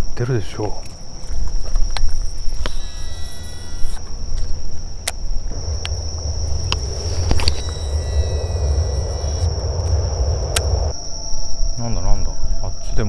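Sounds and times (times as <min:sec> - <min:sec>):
cicadas droning: 0:00.0 - 0:13.0
low rumble: 0:05.5 - 0:11.1.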